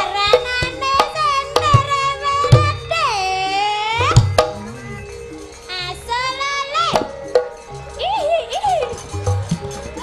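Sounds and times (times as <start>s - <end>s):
gamelan music: 0.0s - 10.0s.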